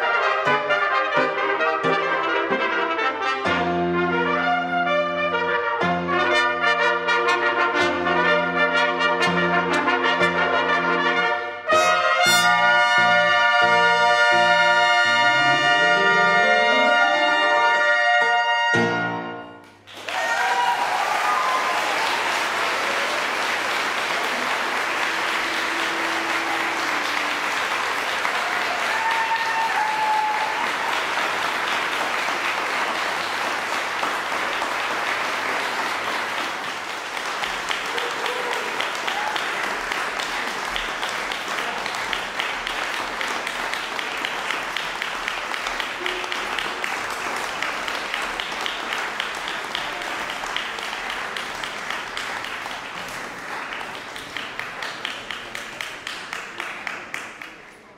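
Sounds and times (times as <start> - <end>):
audience applauding: 19.7 - 57.9.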